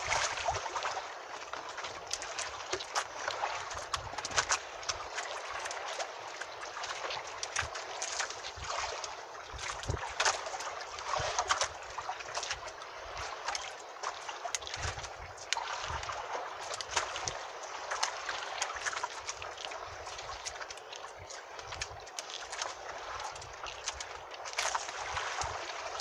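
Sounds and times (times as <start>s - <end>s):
water lapping against boat: 0.0s - 26.0s
low thumps from boat: 9.6s - 11.6s.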